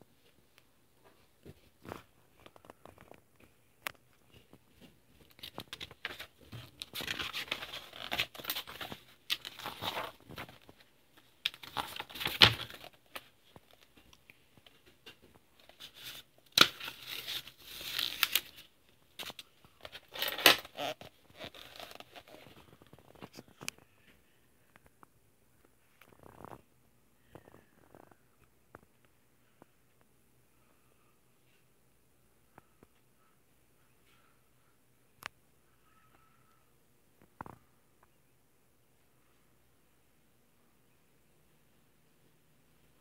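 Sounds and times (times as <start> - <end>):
paper rustling and crinkling: 4.2 - 23.8.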